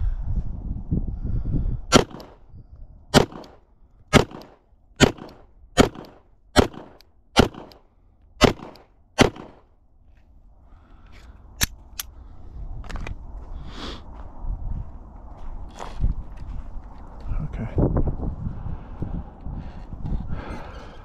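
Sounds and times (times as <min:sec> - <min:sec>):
pistol shots: 0:01.9 - 0:02.4, 0:03.1 - 0:07.8, 0:08.4 - 0:09.6.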